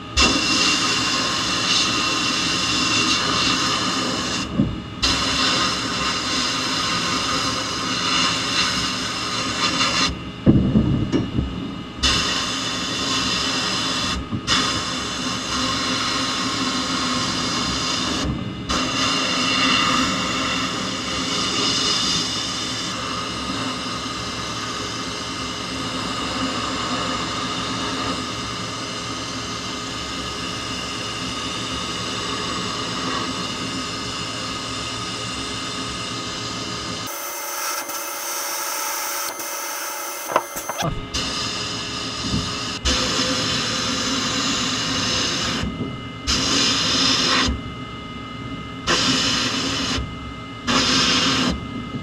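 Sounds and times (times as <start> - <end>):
sandblasting gun hissing: 0.2 - 10.1, 12.0 - 23.2.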